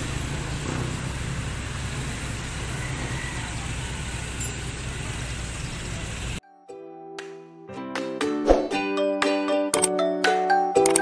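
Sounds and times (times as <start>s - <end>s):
engine idling: 0.0s - 6.4s.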